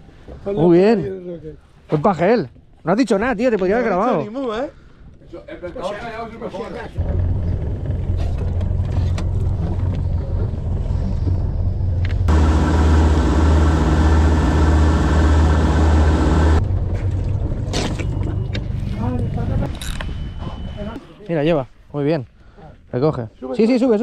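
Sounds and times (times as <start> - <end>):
boat engine humming: 7.0 - 21.0.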